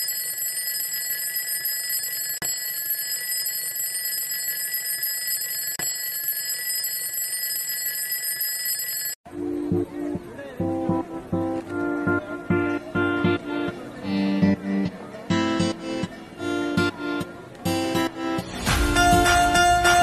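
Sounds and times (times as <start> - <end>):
alarm clock ringing: 0.0 - 9.2.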